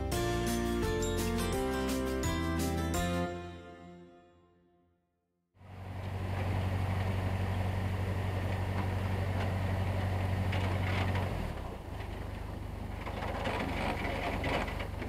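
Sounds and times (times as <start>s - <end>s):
diesel boat engine running: 5.6s - 15.0s
ice breaking against a hull: 13.0s - 15.0s.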